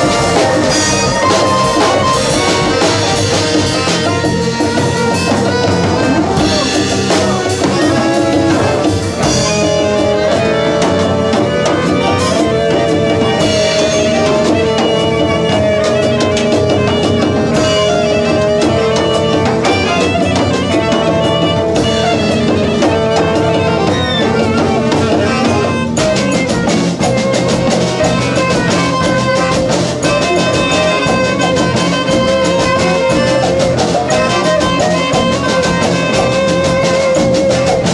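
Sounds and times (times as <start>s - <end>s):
drum kit: 0.0s - 37.9s
saxophone melody: 0.0s - 37.9s.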